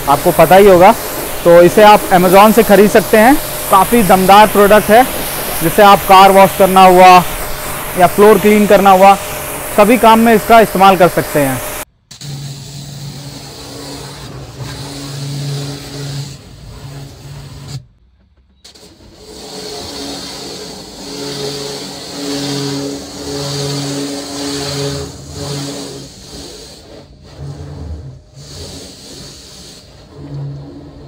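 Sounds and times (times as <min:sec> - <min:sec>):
pressure washer motor humming: 0:00.0 - 0:16.2, 0:19.2 - 0:26.7.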